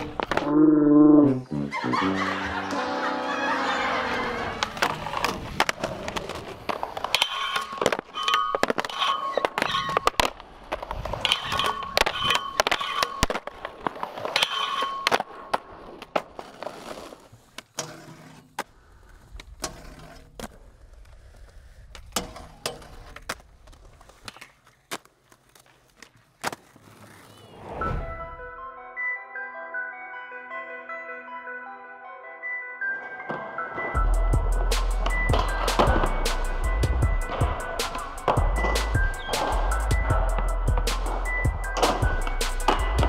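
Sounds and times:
skateboard wheels rolling on concrete: 0.0s - 0.6s, 1.7s - 28.3s, 32.8s - 43.0s
skateboard clacks: 33.3s - 43.0s.

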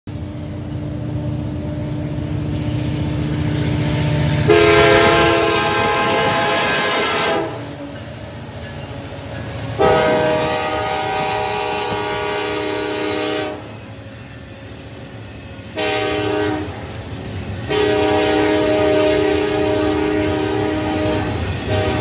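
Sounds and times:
diesel locomotive engine rumble: 0.1s - 22.0s
locomotive air horn blast: 4.4s - 7.7s, 9.8s - 13.8s, 15.8s - 16.8s, 17.7s - 22.0s.

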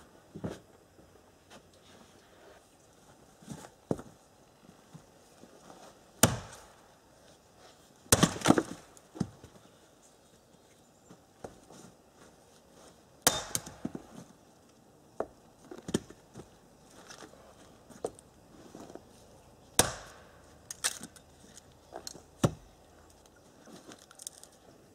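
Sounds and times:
hatchet chopping wood: 6.2s - 6.7s, 8.1s - 8.8s, 13.2s - 14.0s, 19.8s - 20.4s, 22.4s - 22.7s.

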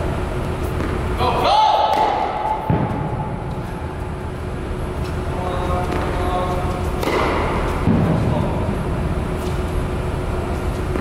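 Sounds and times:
low rumble of indoor hall: 0.0s - 11.0s
tennis racket hitting ball: 1.8s - 3.7s, 6.9s - 8.2s.

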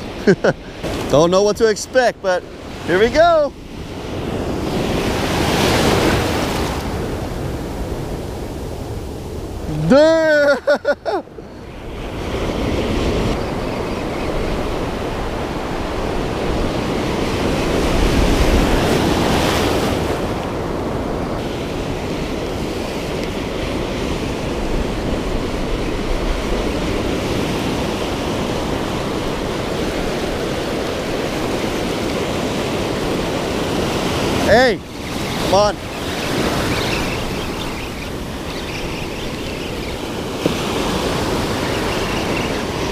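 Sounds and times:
ocean surf breaking: 0.0s - 42.9s.

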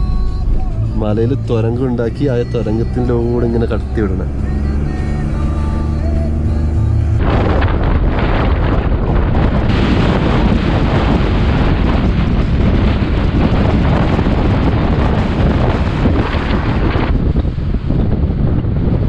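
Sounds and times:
strong wind buffeting microphone: 6.5s - 19.0s.

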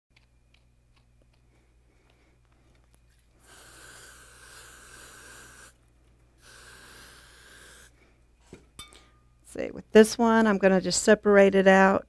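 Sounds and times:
aerosol spray can hissing: 3.4s - 5.8s, 6.4s - 7.9s.

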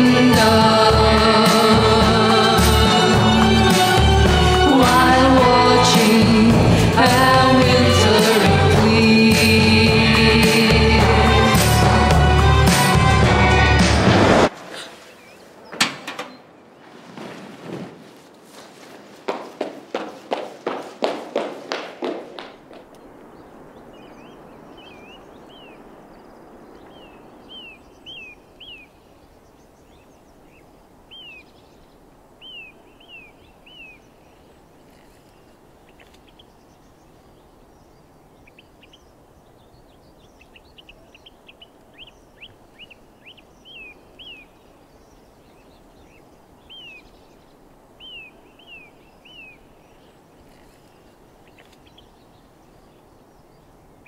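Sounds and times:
outdoor background hiss: 0.0s - 54.0s
small birds chirping: 14.9s - 17.0s, 19.3s - 54.0s.

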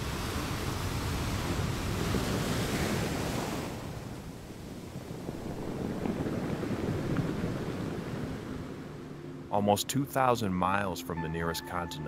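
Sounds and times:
ocean wave washing in: 0.0s - 9.5s.

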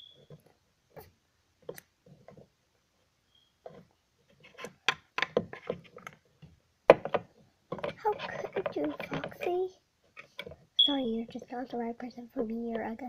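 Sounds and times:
plastic figurines tapping: 4.5s - 10.6s.

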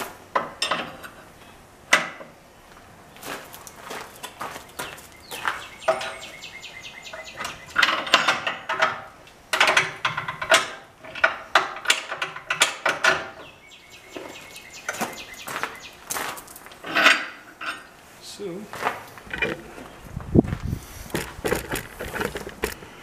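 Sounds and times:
metal parts clanking: 19.2s - 19.9s, 21.1s - 22.9s.

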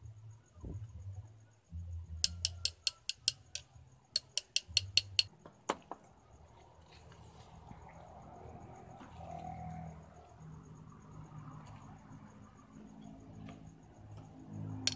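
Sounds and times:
metal rod tapping brass tube: 2.2s - 5.3s.

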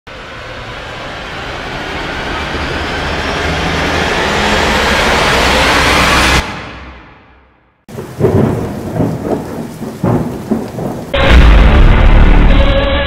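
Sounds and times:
rushing riser sound effect: 0.1s - 7.2s.

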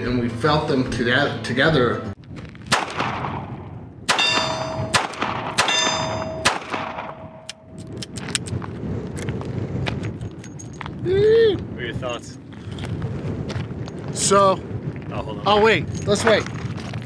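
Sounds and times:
metallic ringing of steel target: 4.1s - 7.7s.

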